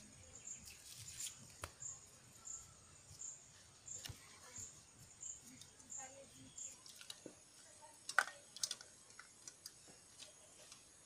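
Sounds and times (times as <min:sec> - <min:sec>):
insect chirping: 0:00.0 - 0:11.0
snail shells clicking on steel plate: 0:08.0 - 0:10.8.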